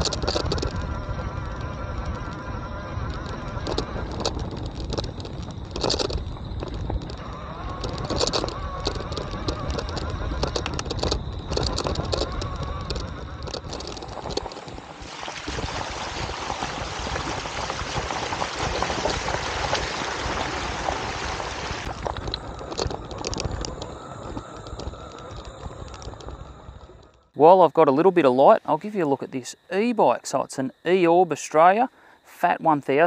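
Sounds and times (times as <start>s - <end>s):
bike frame rattling and clicking: 0.0s - 15.0s, 21.8s - 27.2s
wheels splashing through water: 0.0s - 26.5s
low rumble: 0.0s - 27.4s.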